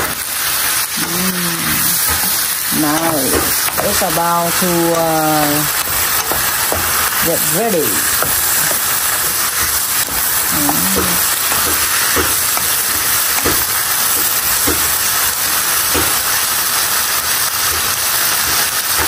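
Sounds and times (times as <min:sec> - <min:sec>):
vegetables sizzling in a pan: 0:00.0 - 0:19.0
wooden spatula stirring: 0:01.6 - 0:16.4.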